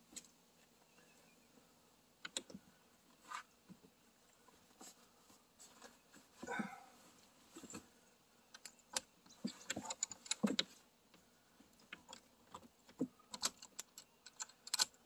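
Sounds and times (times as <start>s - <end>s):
small metal clicks and clinks: 13.3s - 15.0s.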